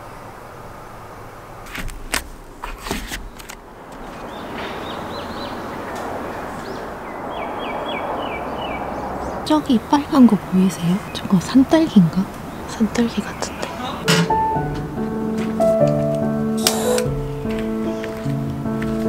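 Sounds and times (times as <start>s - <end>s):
steady rushing background: 1.3s - 13.3s
small bird singing: 4.1s - 14.1s
sharp knocks: 14.1s - 16.2s.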